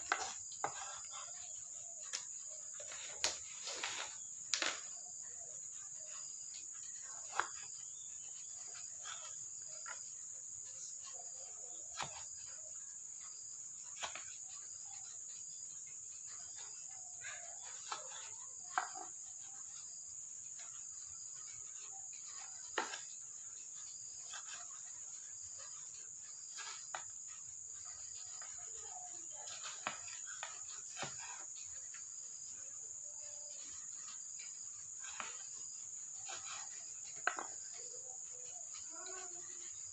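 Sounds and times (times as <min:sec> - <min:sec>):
high-pitched insect drone: 0:32.9 - 0:39.9.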